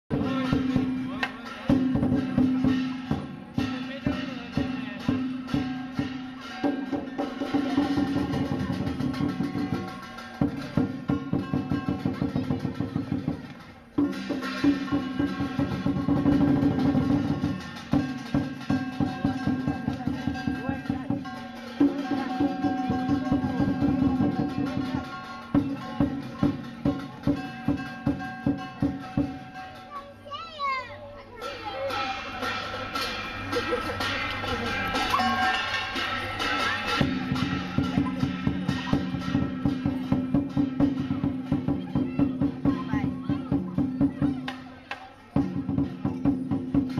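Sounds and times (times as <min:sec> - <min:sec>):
gong: 0:00.1 - 0:13.4, 0:14.0 - 0:29.9, 0:31.5 - 0:44.0
clashing cymbals: 0:00.1 - 0:30.2, 0:31.4 - 0:46.9
lion dance drum beating: 0:00.1 - 0:46.9
ringing gong: 0:34.0 - 0:41.7.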